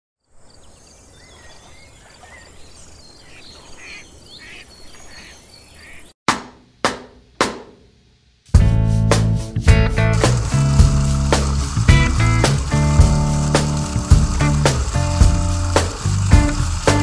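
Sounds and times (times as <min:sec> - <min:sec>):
percussive drum-like hits: 0:06.3 - 0:07.8
music: 0:08.4 - 0:17.0.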